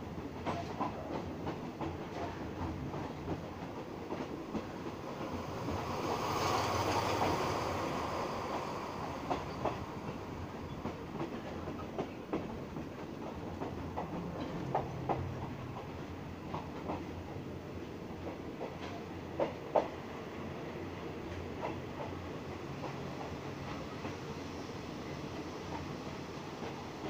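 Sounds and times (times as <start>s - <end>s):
train running on rails: 0.0s - 27.0s
rushing swell: 4.8s - 10.5s.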